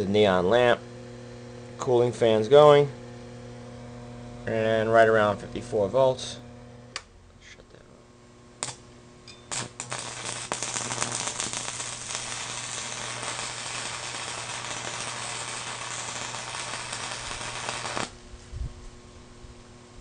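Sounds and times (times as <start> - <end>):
welder humming: 0.0 - 18.4
welding arc crackling: 8.6 - 18.2
welding arc snaps: 8.6 - 18.2.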